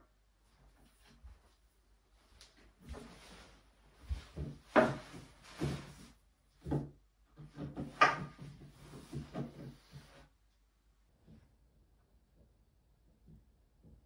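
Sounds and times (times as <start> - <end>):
shuffling footsteps: 0.7 - 6.2
wooden knocks and scuffs: 2.8 - 10.2.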